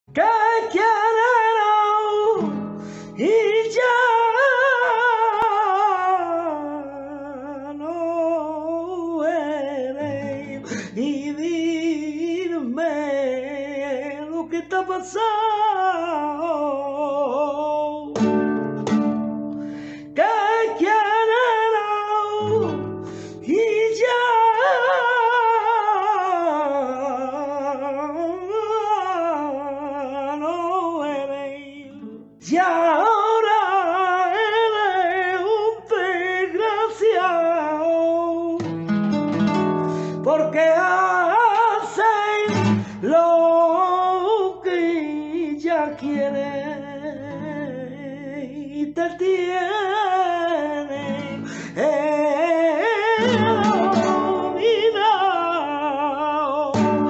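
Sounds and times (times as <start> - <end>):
man singing flamenco: 0.0 - 57.0
strummed guitar chords: 0.1 - 5.8, 18.1 - 25.6, 38.6 - 44.2, 50.6 - 55.7, 56.6 - 57.0.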